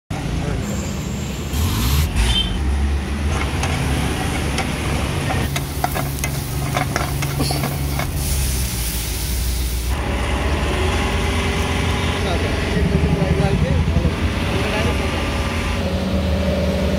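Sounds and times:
low rumble of road traffic: 0.1s - 16.9s
frying hiss: 5.4s - 10.0s.

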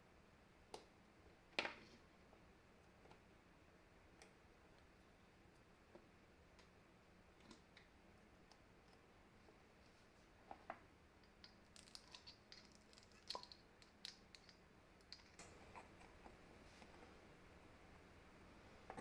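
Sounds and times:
small metal parts clicking: 11.2s - 15.5s.

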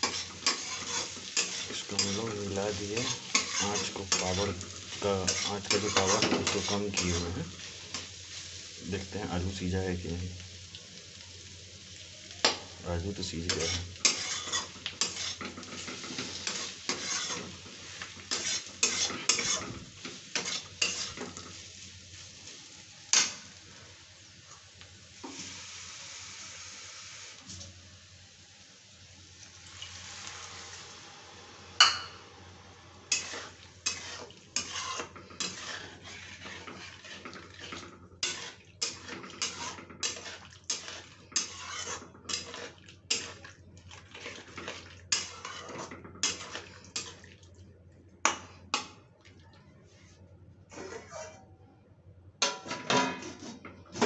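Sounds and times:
metal spatula scraping a pan: 0.0s - 8.7s, 13.3s - 21.7s, 23.1s - 23.5s, 33.1s - 47.2s, 50.7s - 51.5s, 52.4s - 54.0s
steady hiss: 17.7s - 34.0s.

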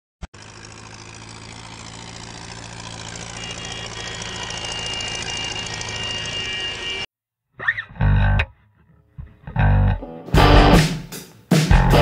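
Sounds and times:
tractor engines humming: 0.3s - 7.1s
high-pitched whine: 2.1s - 7.1s.

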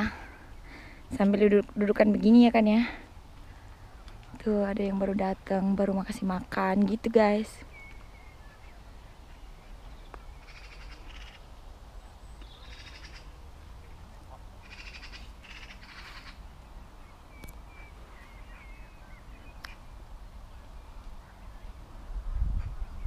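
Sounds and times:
small birds chirping: 0.0s - 21.9s
low wind rumble: 0.0s - 23.0s
crow cawing: 10.5s - 11.4s, 12.6s - 13.3s, 14.6s - 16.4s.

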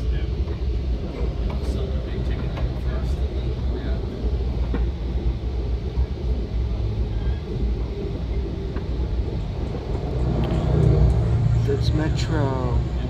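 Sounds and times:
train rumble from inside: 0.0s - 13.0s.

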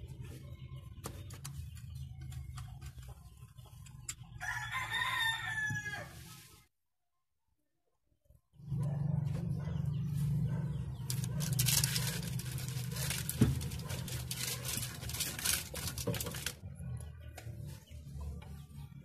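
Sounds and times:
rubber and metal scraping: 11.0s - 16.7s.

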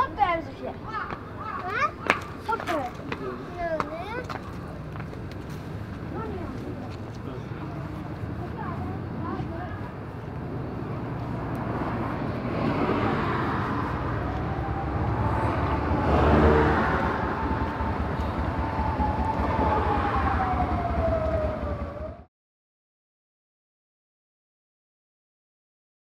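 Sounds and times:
vehicles passing: 0.0s - 22.3s
whining tone falling in pitch: 13.8s - 22.3s.

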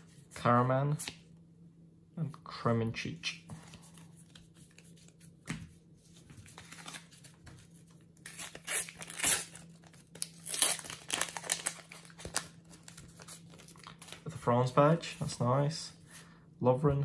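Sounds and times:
sticker packet tearing and crinkling: 8.2s - 14.2s.

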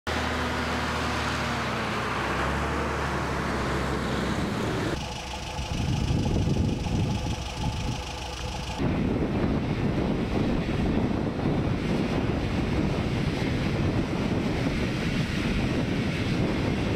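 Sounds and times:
heavy truck engine running: 0.1s - 16.9s
uneven low rumble: 5.0s - 16.9s.

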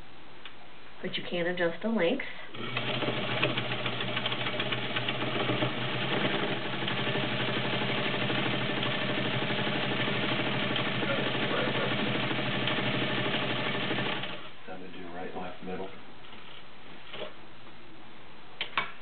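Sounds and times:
sewing machine running: 2.5s - 14.5s.

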